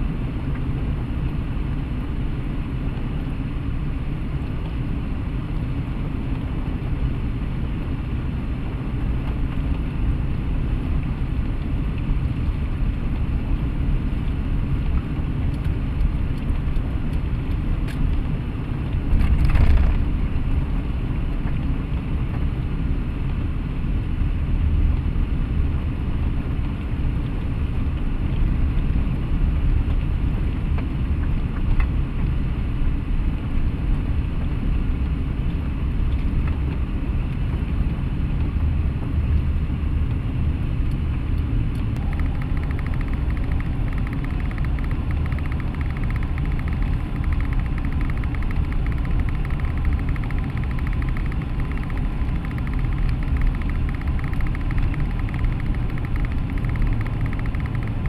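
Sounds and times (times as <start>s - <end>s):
car engine and road rumble: 0.0s - 58.0s
fine rapid pattering: 42.0s - 58.0s
rain spattering on windshield: 42.0s - 58.0s.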